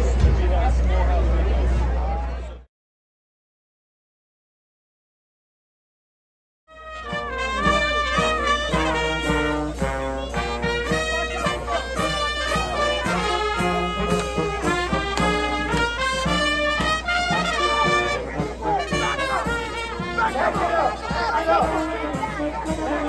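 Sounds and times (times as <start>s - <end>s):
brass band playing: 6.7s - 23.0s.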